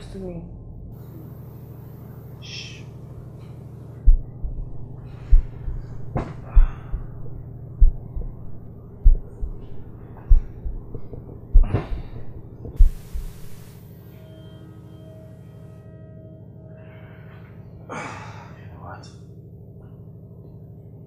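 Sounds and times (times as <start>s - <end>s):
low drone: 0.0s - 21.0s
noisy swells: 0.8s - 14.3s
heartbeat-like thump: 4.0s - 13.8s
burst of hiss: 12.8s - 14.0s.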